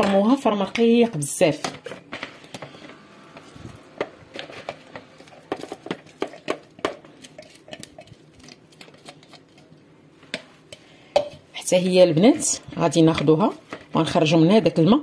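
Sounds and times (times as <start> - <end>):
spatula tapping and scraping sieve: 4.0 - 11.4.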